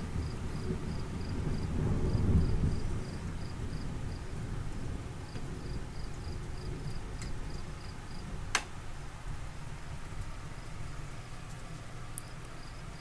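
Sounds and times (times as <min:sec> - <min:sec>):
cricket chirping: 0:00.2 - 0:04.3, 0:05.3 - 0:08.2, 0:12.2 - 0:13.0.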